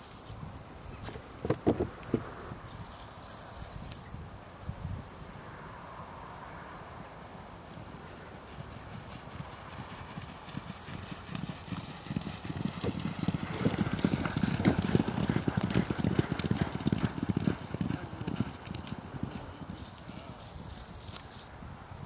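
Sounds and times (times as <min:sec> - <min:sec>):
horses galloping hoofbeats: 0:07.7 - 0:21.3.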